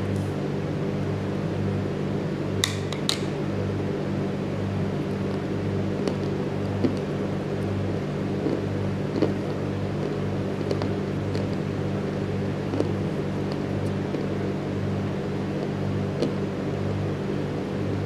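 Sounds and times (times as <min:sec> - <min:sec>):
low mechanical hum: 0:00.0 - 0:18.0
chewing crunches: 0:08.4 - 0:11.6.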